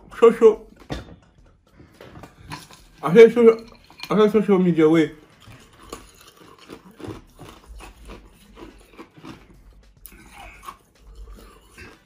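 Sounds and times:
person chewing: 5.2s - 12.0s.

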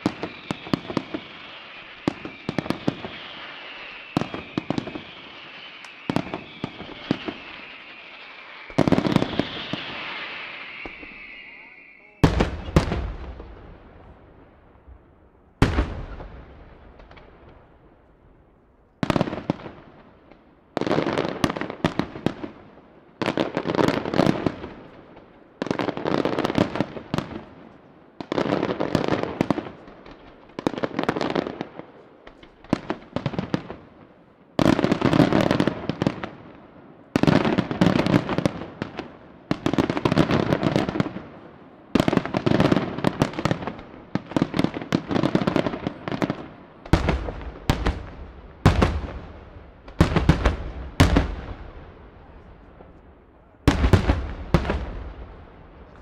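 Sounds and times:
firework shells bursting: 2.0s - 13.2s.

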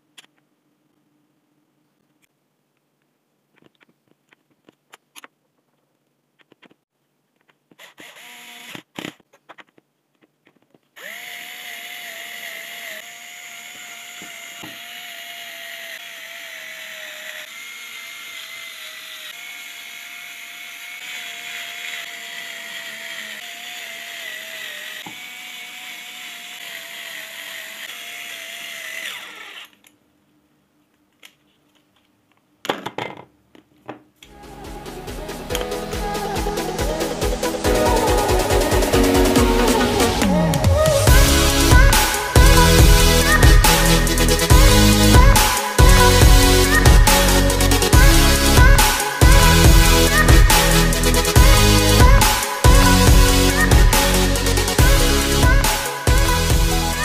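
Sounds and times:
small power tool motor whining: 7.7s - 9.6s, 11.0s - 29.8s, 35.5s - 57.0s.

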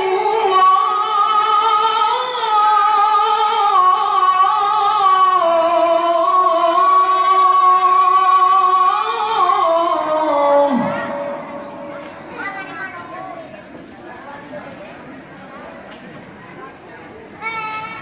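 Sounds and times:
man chanting through microphone: 0.0s - 12.2s.

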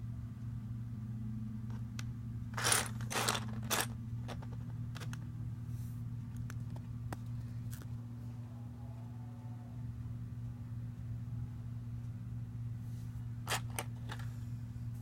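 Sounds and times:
plastic bricks clattering: 2.6s - 5.2s.

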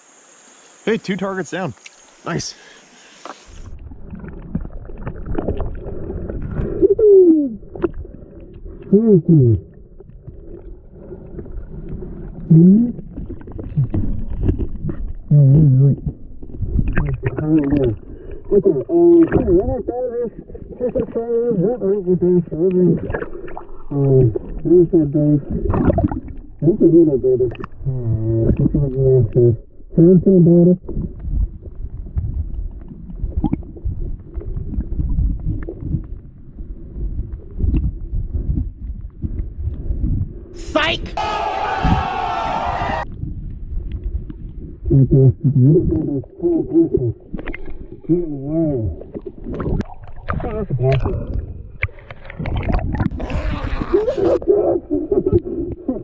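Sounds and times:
low rumble of moving water: 2.0s - 40.6s, 42.6s - 56.0s
muffled wordless vocal sounds: 16.9s - 25.6s, 26.6s - 30.9s, 44.9s - 47.2s, 48.0s - 49.0s, 50.3s - 51.6s.

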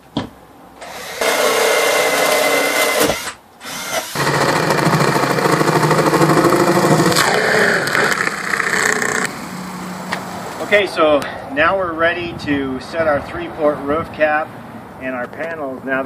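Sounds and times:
power drill boring: 0.8s - 9.3s.

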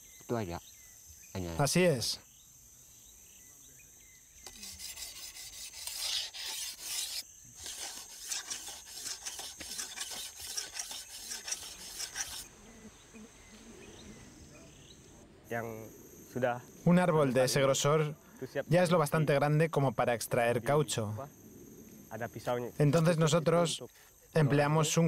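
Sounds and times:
knife scraping tree bark: 4.4s - 12.5s.

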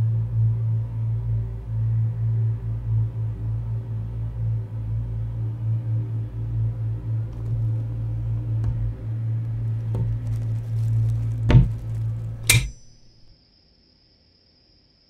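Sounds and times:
low ominous hum: 0.0s - 13.3s
faint knocks: 7.4s - 13.3s.

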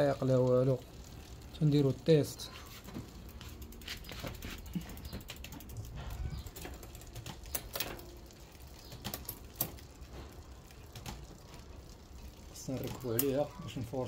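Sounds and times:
bike chain running over cassette: 0.0s - 13.5s
sharp clicks: 4.8s - 9.8s.

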